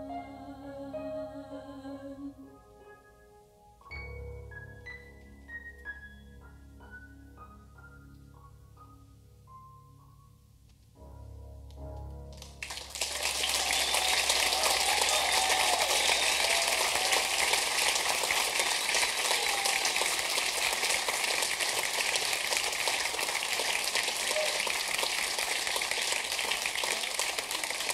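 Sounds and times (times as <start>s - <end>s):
audience applauding: 12.4s - 27.9s
audience cheering: 12.7s - 27.9s.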